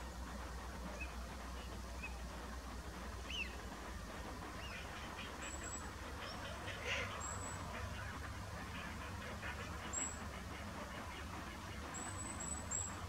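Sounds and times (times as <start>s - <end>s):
low steady rumble: 0.0s - 13.0s
waterbirds calling: 3.2s - 13.0s.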